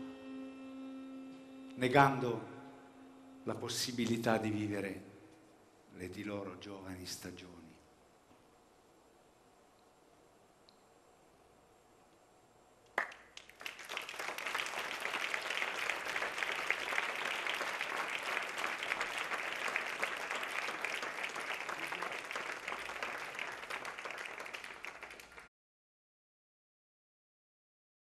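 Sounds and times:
audience applauding: 13.0s - 25.5s.

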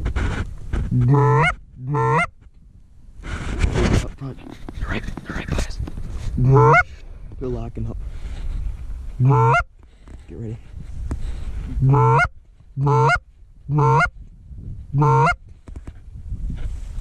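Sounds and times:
goose honking: 1.0s - 2.3s, 6.4s - 6.9s, 9.2s - 9.7s, 11.8s - 14.1s, 15.0s - 15.4s.

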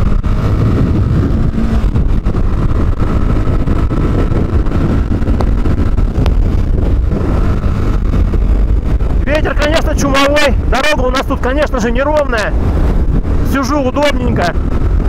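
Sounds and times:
motorcycle engine accelerating: 0.0s - 15.0s
wind rushing over microphone: 0.0s - 15.0s.

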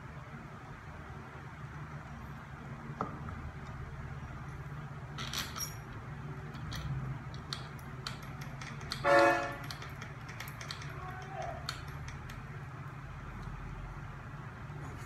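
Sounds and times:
small metal parts clinking: 4.4s - 12.6s.

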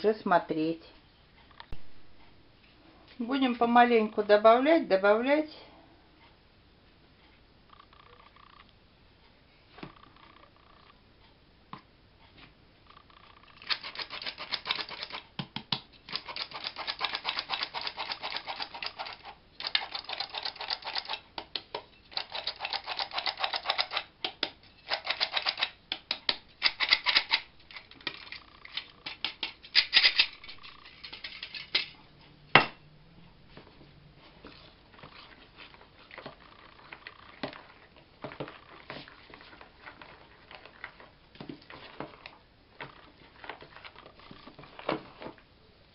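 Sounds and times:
flour sifter clicking and rasping: 13.6s - 31.8s
spoon stirring flour: 34.2s - 45.3s.

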